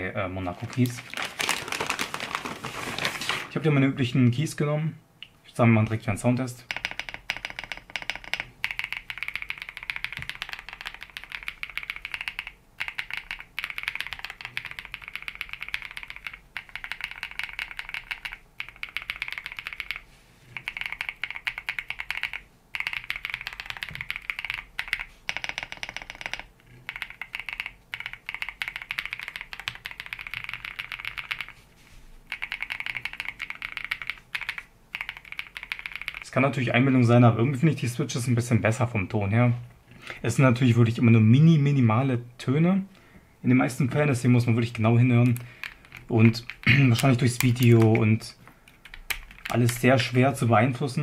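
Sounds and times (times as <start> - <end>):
mechanical keyboard typing: 6.7 - 20.0, 20.6 - 31.6, 32.3 - 36.3, 45.2 - 48.1, 48.7 - 50.4.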